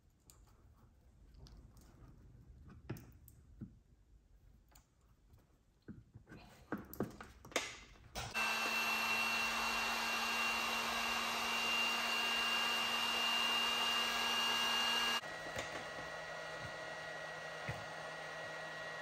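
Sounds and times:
heat gun blowing: 0:08.3 - 0:19.0.

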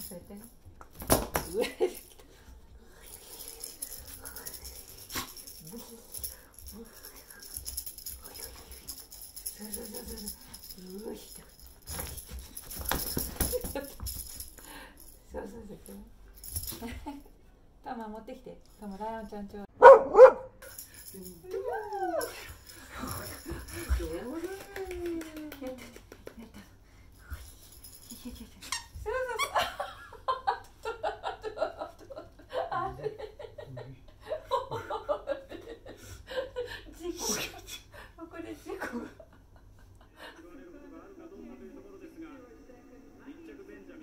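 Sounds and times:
dog shaking a toy: 0:03.0 - 0:17.2, 0:20.6 - 0:29.1.

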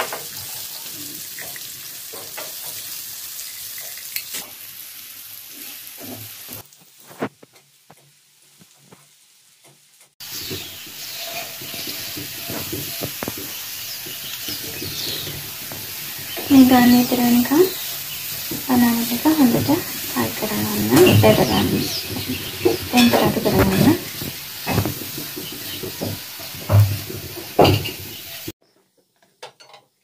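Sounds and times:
banana sizzling in a pan: 0:00.0 - 0:28.6
wooden spatula scraping a pan: 0:10.2 - 0:28.5.

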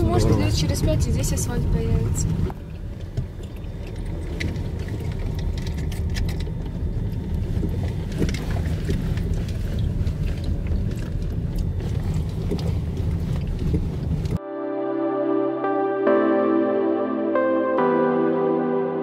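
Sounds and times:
engine and tyre rumble: 0:00.0 - 0:14.4
clicks and rattles over stones: 0:03.0 - 0:14.4.

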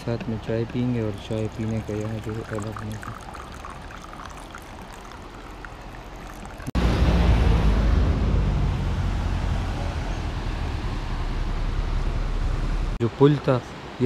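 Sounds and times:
river flowing: 0:00.6 - 0:07.8.

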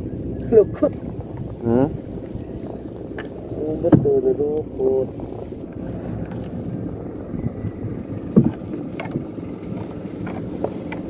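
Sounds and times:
fishing net hauled by hand: 0:00.0 - 0:11.0
water washing around hull: 0:00.0 - 0:11.0
wind: 0:00.0 - 0:11.0
short knocks: 0:03.2 - 0:04.4.

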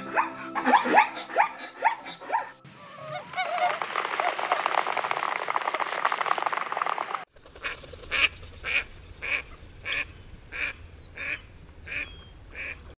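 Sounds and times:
duck quacking: 0:07.6 - 0:12.9.

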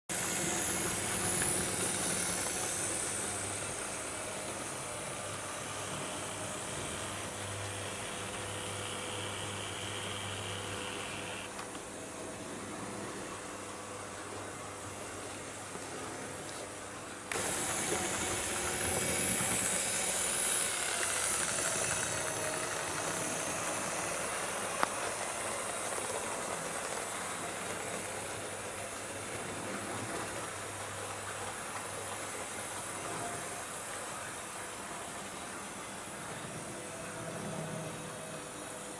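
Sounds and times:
model train motor whirring: 0:00.1 - 0:11.7, 0:17.3 - 0:30.6
wheels rolling on rails: 0:00.1 - 0:11.8, 0:17.3 - 0:33.2.

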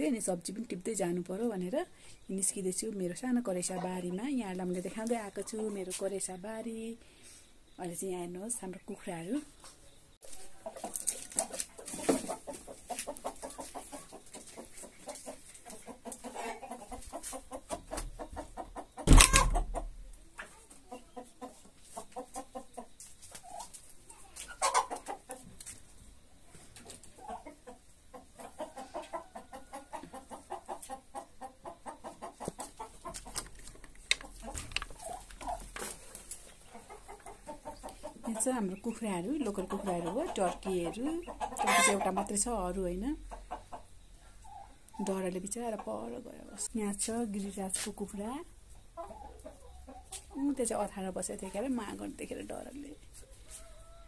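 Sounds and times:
chickens clucking: 0:00.0 - 0:54.0.

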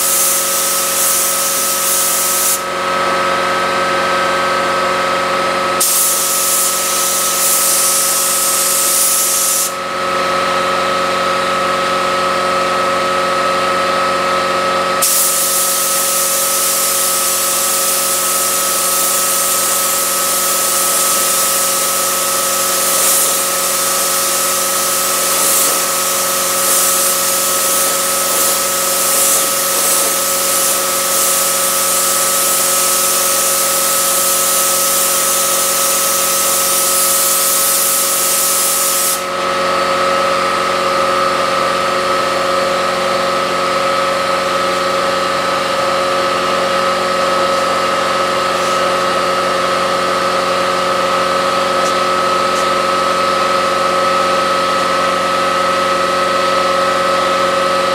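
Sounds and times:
spray gun hissing: 0:00.0 - 0:02.7, 0:05.8 - 0:09.8, 0:15.0 - 0:39.3, 0:48.4 - 0:49.2
machine hum: 0:19.4 - 0:32.7, 0:46.5 - 0:54.6.

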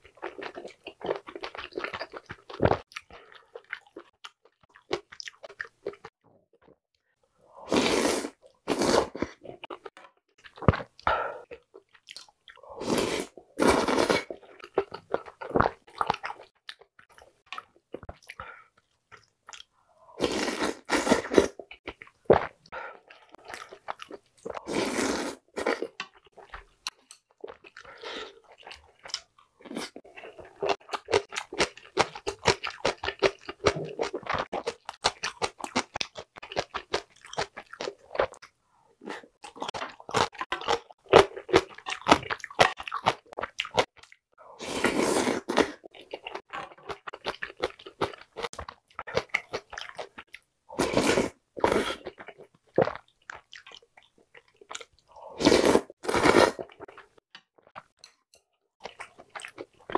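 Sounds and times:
wet slurping of soup: 0:07.6 - 0:09.6, 0:12.6 - 0:14.4, 0:20.1 - 0:21.6, 0:24.5 - 0:25.9, 0:44.5 - 0:45.9, 0:50.8 - 0:52.1, 0:55.1 - 0:56.9
chewing and crunching: 0:25.6 - 0:44.2.

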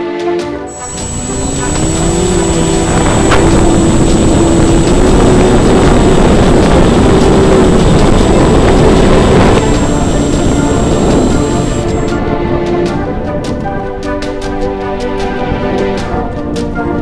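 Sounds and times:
electric motor and propeller hum: 0:00.7 - 0:12.8
wind rushing over microphone: 0:00.7 - 0:14.2.

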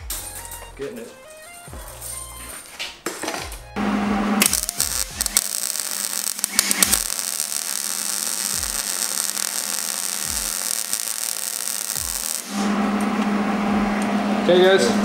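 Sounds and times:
welding arc crackling hiss: 0:03.8 - 0:14.9
sharp welding pops: 0:04.4 - 0:12.6.

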